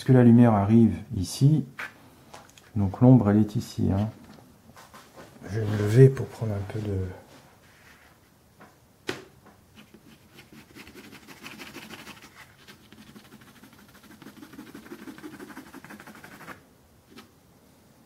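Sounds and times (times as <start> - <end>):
pencil scratching on paper: 9.8 - 16.6.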